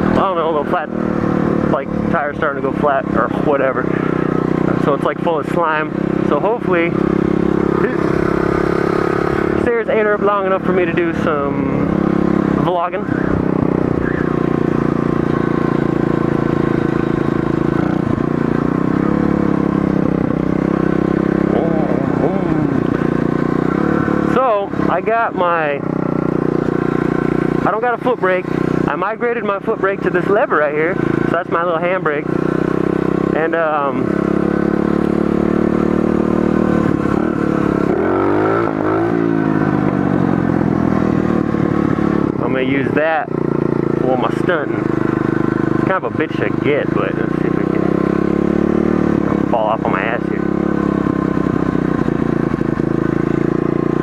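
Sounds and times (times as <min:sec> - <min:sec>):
pit bike engine running: 0:00.0 - 0:54.0.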